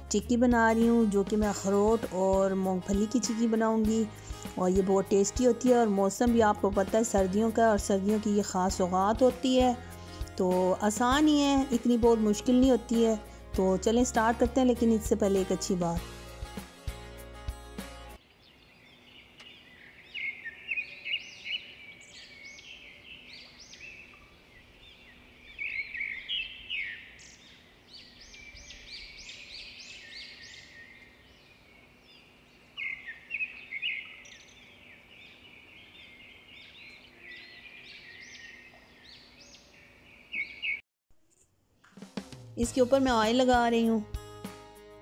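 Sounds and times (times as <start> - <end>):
small birds chirping and trilling: 18.2 - 40.8.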